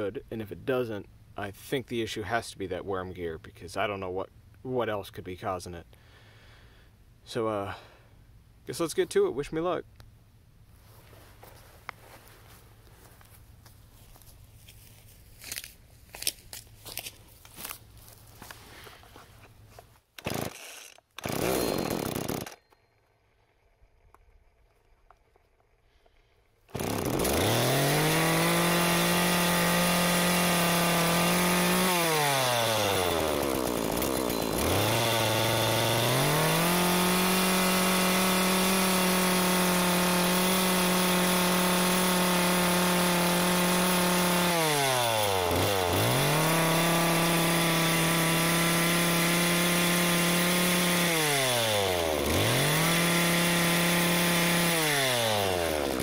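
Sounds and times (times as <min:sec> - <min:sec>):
chainsaw engine revving: 0:20.2 - 0:22.7, 0:25.5 - 0:56.0.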